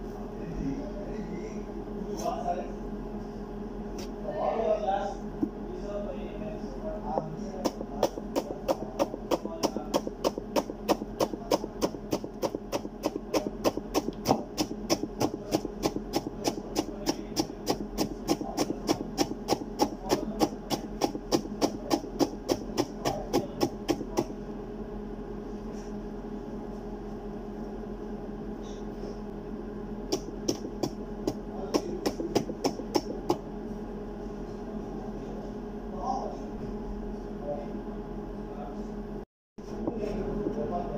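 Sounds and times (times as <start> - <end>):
steady low hum: 0.0 - 40.9
knife chopping on cutting board: 7.2 - 24.3, 30.1 - 33.4.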